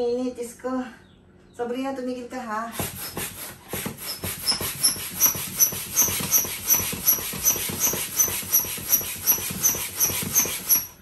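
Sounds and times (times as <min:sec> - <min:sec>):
hand air pump rushing: 0:02.7 - 0:11.0
pump squeaking: 0:02.8 - 0:11.0.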